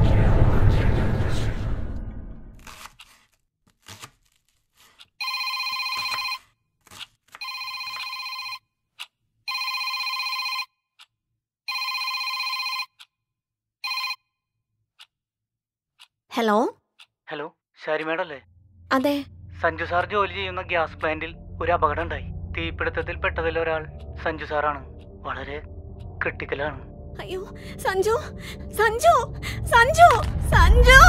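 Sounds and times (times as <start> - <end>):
mobile phone ringing: 5.2 - 6.6, 7.4 - 8.7, 9.5 - 10.8, 11.7 - 13.0, 13.8 - 14.3.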